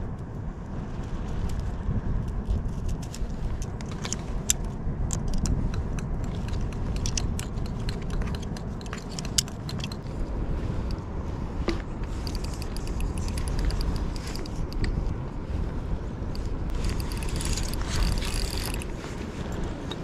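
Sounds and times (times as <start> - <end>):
wind buffeting microphone: 0.0 - 20.0
fishing gear clicking and rattling: 2.2 - 10.1, 11.7 - 15.0, 16.7 - 20.0.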